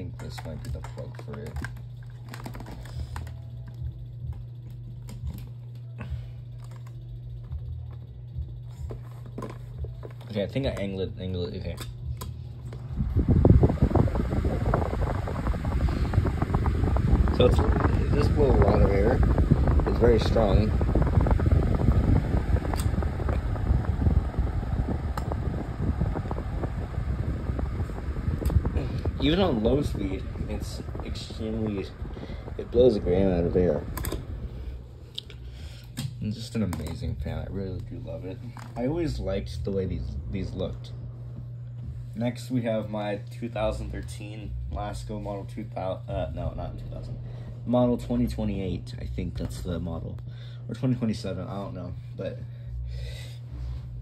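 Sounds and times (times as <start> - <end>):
electric fan running: 0.0 - 54.0
steady low hum: 0.0 - 54.0
fan plug and knob clicks: 21.6 - 26.8, 32.9 - 34.4.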